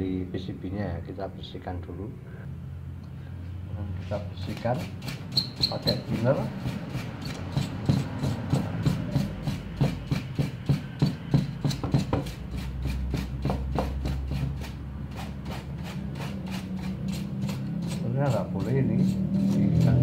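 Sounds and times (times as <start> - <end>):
brush scrubbing circuit board: 4.5 - 8.5, 14.0 - 20.0.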